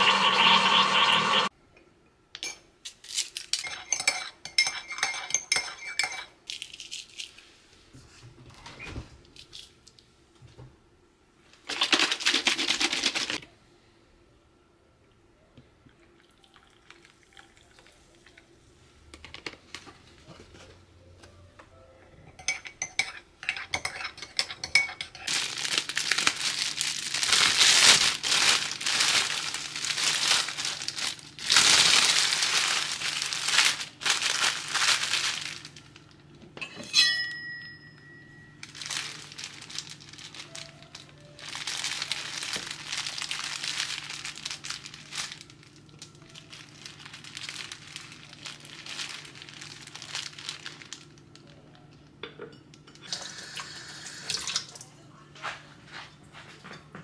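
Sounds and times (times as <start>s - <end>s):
plastic bag crinkling: 11.7s - 13.4s, 25.2s - 36.2s, 38.6s - 51.7s
metal spoon clinking on mug: 36.6s - 38.3s.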